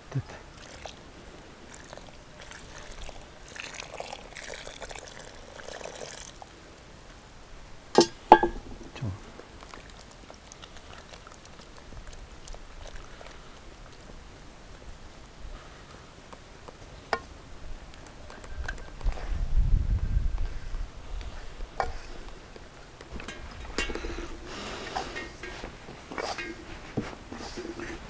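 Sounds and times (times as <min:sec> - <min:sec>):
sharp ringing knocks: 0:08.0 - 0:09.0
dough mixed by hand in bowl: 0:23.1 - 0:28.0.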